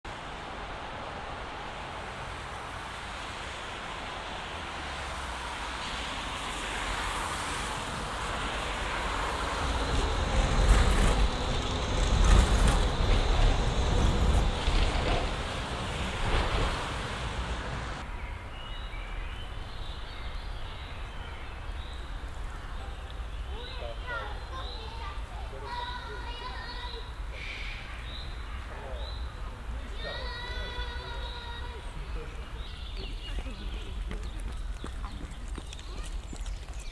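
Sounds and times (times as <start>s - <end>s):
street traffic: 0.0s - 36.9s
electric tram passing: 0.1s - 18.1s.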